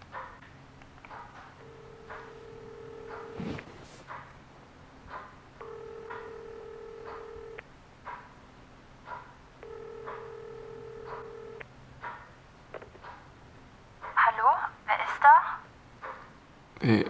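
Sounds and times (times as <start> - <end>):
telephone ringback tone: 1.6 - 3.6, 5.6 - 7.6, 9.6 - 11.6.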